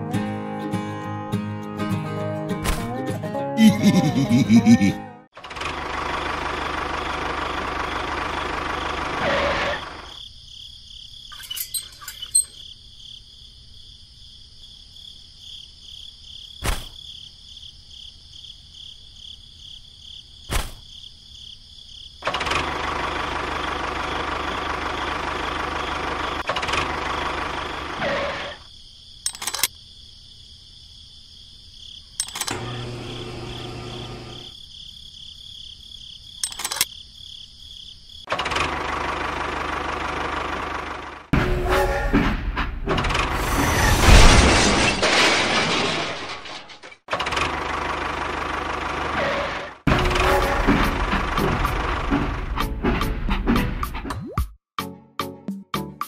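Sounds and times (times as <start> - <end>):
small motor running: 32.5 - 34.5
sharp clicks: 36.4 - 36.9.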